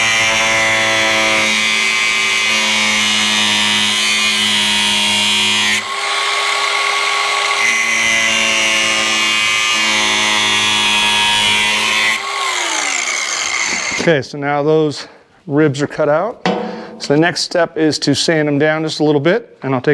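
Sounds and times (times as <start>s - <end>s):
angle grinder cutting plastic: 0.0s - 14.1s.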